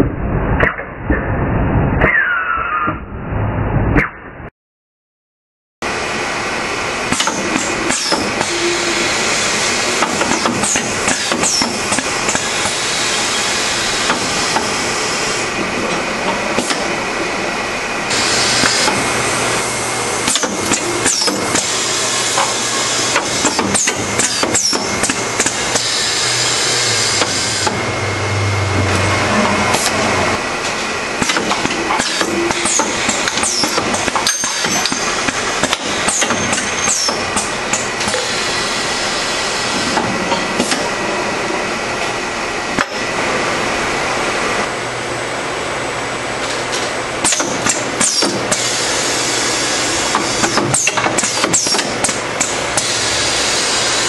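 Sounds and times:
machine mechanism clicks and clacks: 7.1s - 8.5s, 20.2s - 21.7s, 22.4s - 25.9s, 31.2s - 38.3s, 46.4s - 48.6s, 50.1s - 52.9s
low hum: 24.8s - 32.0s
hiss bursts: 52.7s - 54.0s.

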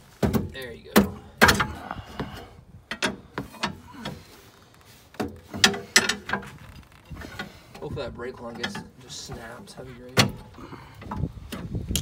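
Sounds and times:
pry bar clanking on metal: 0.2s - 1.8s, 5.5s - 6.4s.

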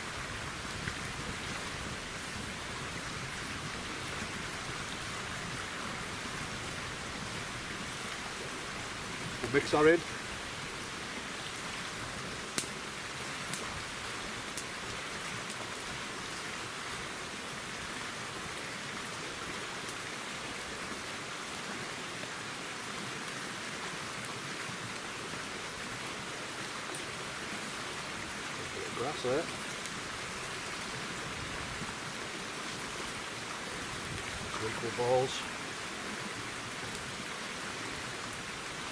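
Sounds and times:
small stream rushing: 0.0s - 38.9s.

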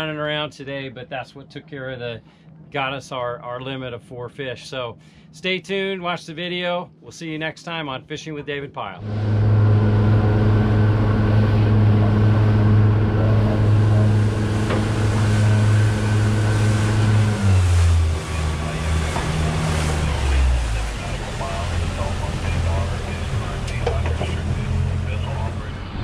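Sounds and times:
wind: 0.0s - 26.0s
water noise: 8.9s - 26.0s
boat engine running: 9.0s - 26.0s.

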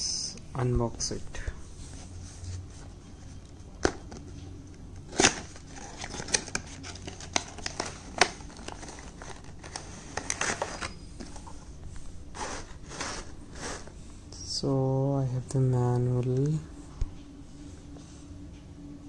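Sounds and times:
cardboard rustling: 1.0s - 14.0s.

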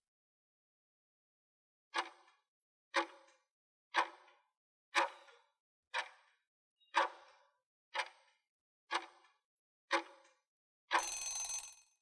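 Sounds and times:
clock-like timer ticking: 10.9s - 11.7s.

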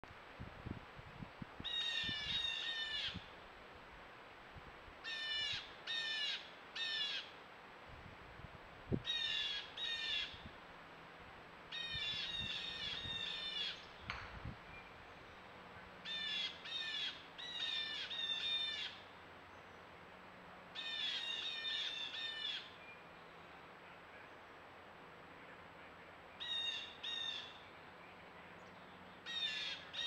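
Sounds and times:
bird calling loudly: 5.0s - 7.3s, 16.0s - 19.0s, 20.8s - 22.8s, 26.4s - 27.6s, 29.2s - 30.0s.

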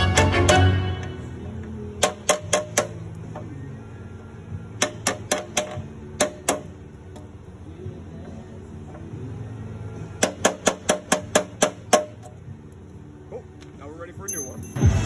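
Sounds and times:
background music: 0.0s - 15.0s
steel punch tapping metal: 2.0s - 3.5s, 4.8s - 7.3s, 10.2s - 12.4s.

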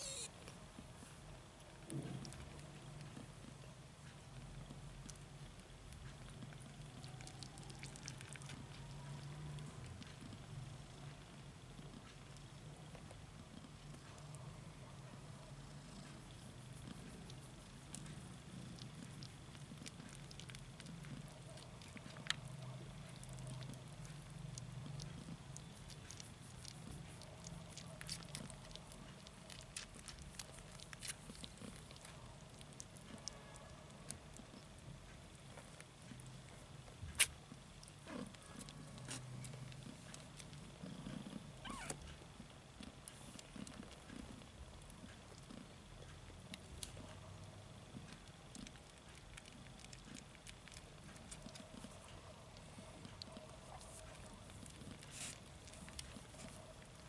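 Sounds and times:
cat purring: 0.0s - 57.0s
faint crackling clicks: 33.9s - 47.2s, 47.8s - 57.0s.

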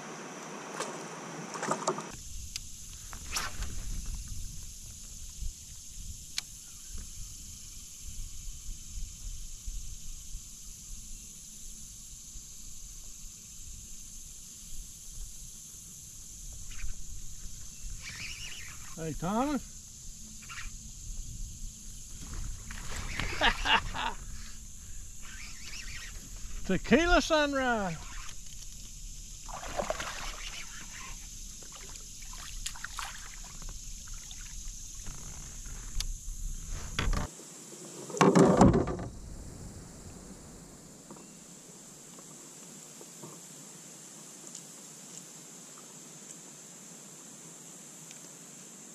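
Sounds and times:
high-pitched hiss: 0.0s - 48.9s
water splashing and dripping: 29.4s - 30.8s, 31.6s - 34.6s.

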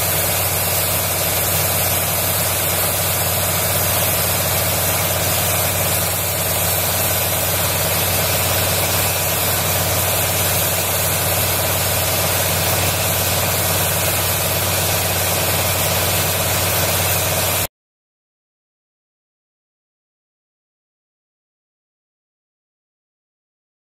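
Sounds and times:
blower drone with rushing air: 0.0s - 17.7s.

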